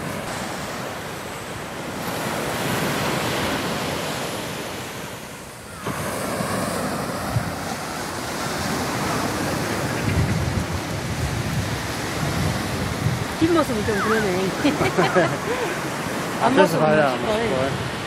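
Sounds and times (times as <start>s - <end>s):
surf breaking on sandy beach: 0.0s - 18.0s
wind buffeting microphone: 6.6s - 18.0s.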